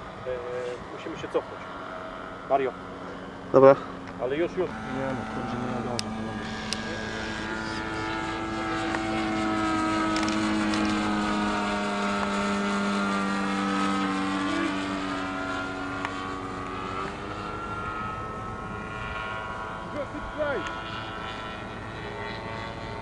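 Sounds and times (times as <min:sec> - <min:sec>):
model airplane engine flying past: 0:00.0 - 0:23.0.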